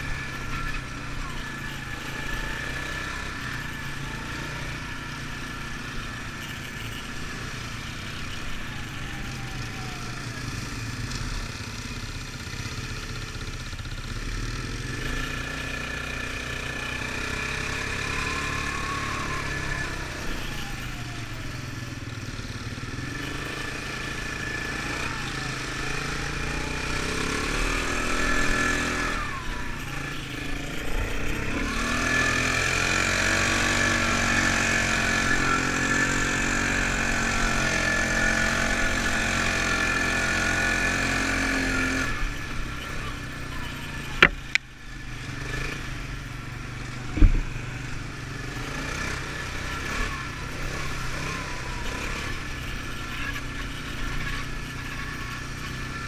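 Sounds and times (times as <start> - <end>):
quad bike engine revving: 0.0 - 56.0.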